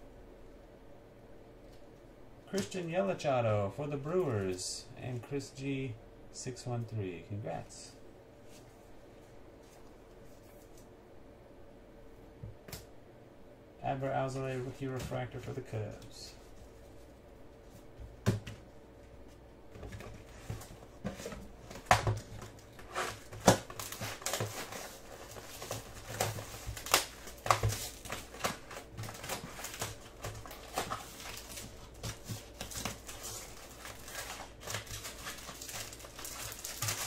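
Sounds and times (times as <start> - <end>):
card pack wrappers crinkling: 20.0 - 37.0.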